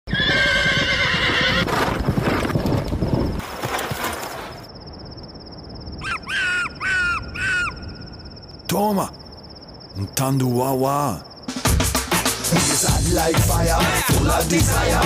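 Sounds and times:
horse whinnying: 0.1 - 2.4
crickets chirping: 0.1 - 15.0
short falling calls: 6.0 - 9.3.

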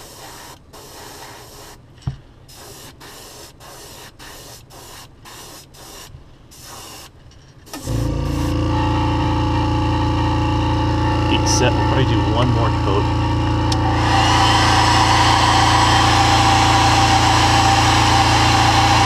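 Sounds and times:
airbrush hissing: 0.0 - 1.8, 2.5 - 7.1, 7.8 - 8.5
motor humming: 7.7 - 19.0.

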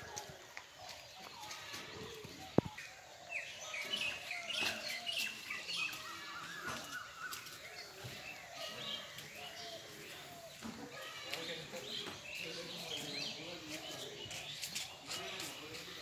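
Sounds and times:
birds chirping and calling: 0.0 - 16.0.

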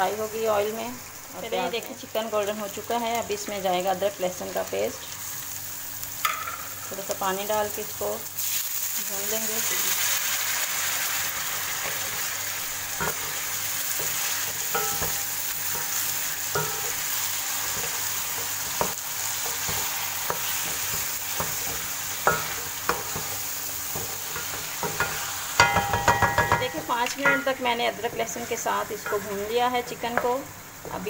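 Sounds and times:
chicken sizzling in oil: 0.0 - 31.0
spatula scraping pan: 12.9 - 31.0.

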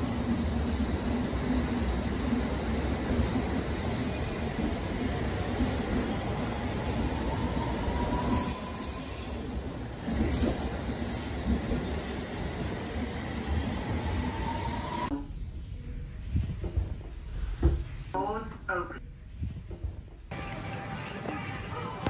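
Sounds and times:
train wheels rumbling on rail: 0.0 - 15.1.

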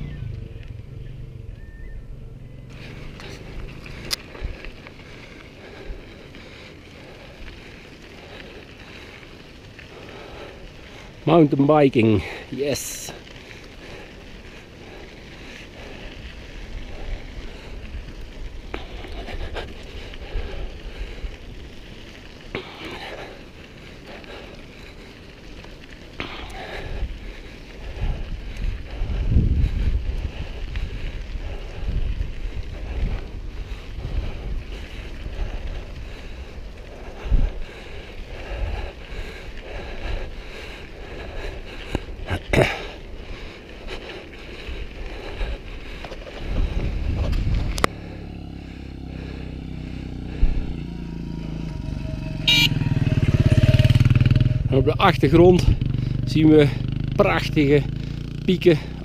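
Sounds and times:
wind rumbling on microphone: 0.0 - 11.2, 12.8 - 22.6, 23.2 - 56.3
tyres crackling on gravel: 0.0 - 59.0
wind buffeting the microphone: 26.7 - 47.9, 53.0 - 56.2.

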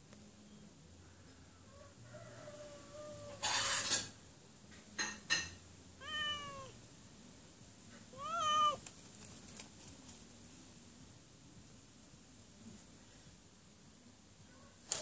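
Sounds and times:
cat meowing: 6.0 - 6.8, 8.1 - 8.8.

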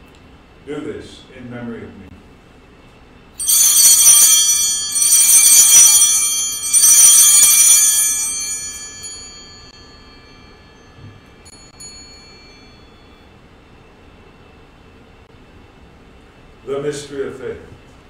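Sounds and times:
altar bell ringing: 3.4 - 13.8.

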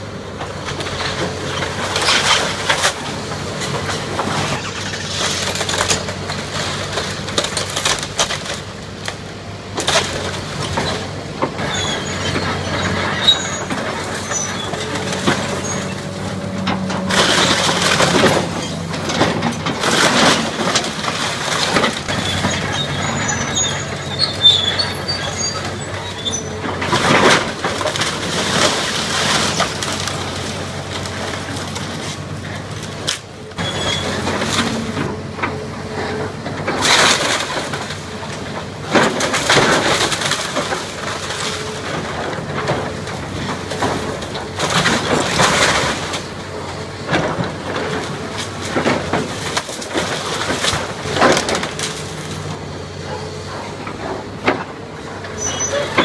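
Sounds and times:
excavator diesel engine running: 0.0 - 56.0
falling debris: 0.7 - 9.2, 9.8 - 52.6
timber cracking and crashing: 0.7 - 23.8, 26.6 - 35.6, 36.4 - 46.5, 47.1 - 52.6
short high squeaks: 22.1 - 26.6, 33.6 - 34.2, 55.4 - 56.0.

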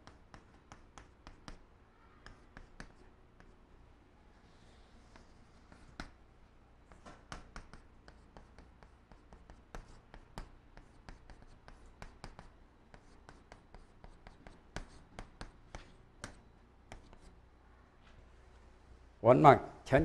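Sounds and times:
chalk tapping on a chalkboard: 0.0 - 1.6, 2.2 - 3.6, 5.0 - 6.2, 6.9 - 17.3.

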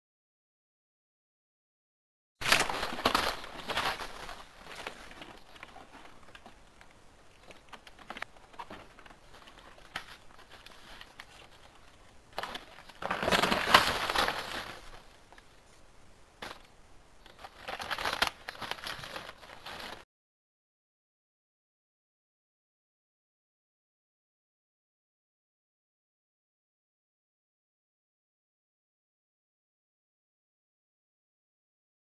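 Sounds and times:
crunching and rustling in snow: 2.4 - 15.8
faint crackles in snow: 2.4 - 20.0.

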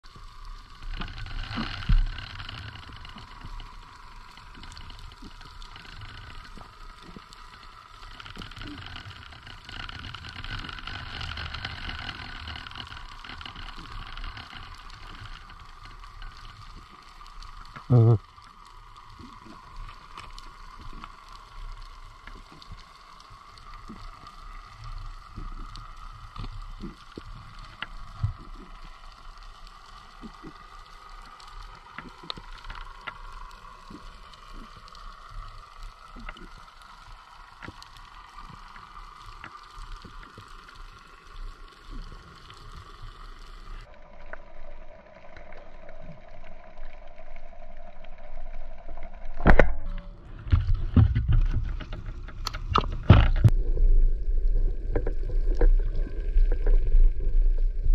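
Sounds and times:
faint clicks and crackles: 0.0 - 57.9
steady underwater hum: 0.0 - 57.9
low rumble: 43.8 - 57.9.

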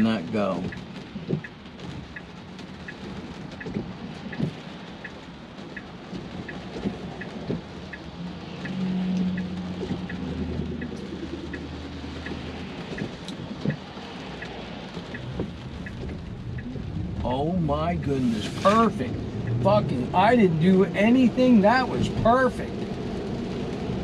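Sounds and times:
rain drumming on glass roof: 0.0 - 24.0
turn signal ticking: 0.0 - 24.0
passing vehicle hum: 6.3 - 24.0.

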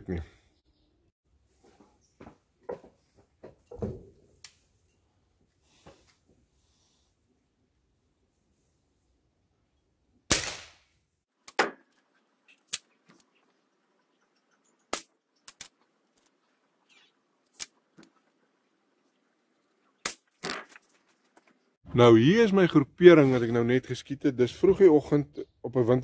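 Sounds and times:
air rifle firing crack: 10.3 - 10.8.

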